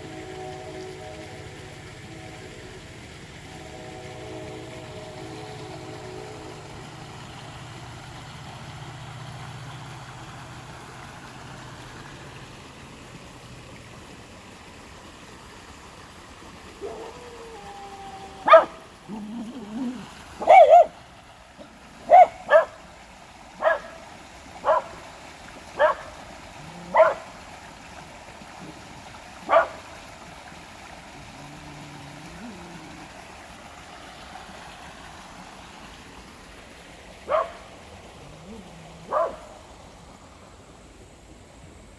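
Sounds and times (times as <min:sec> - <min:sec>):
creek flowing over rocks: 0:00.0 - 0:41.9
dog barking: 0:18.4 - 0:18.8, 0:20.4 - 0:21.0, 0:22.1 - 0:22.8, 0:23.6 - 0:24.0, 0:24.6 - 0:24.9, 0:25.8 - 0:26.1, 0:26.8 - 0:27.2, 0:29.5 - 0:29.8, 0:37.3 - 0:37.6, 0:38.5 - 0:39.5.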